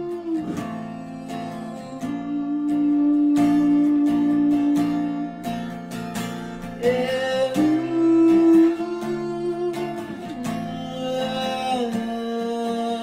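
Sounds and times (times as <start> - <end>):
acoustic guitar strummed: 0.0 - 13.0
man singing: 6.8 - 13.0.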